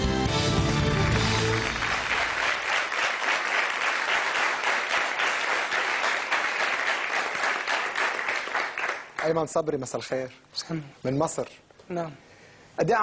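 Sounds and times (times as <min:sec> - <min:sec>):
theme music: 0:00.0 - 0:02.7
audience applauding: 0:00.0 - 0:09.6.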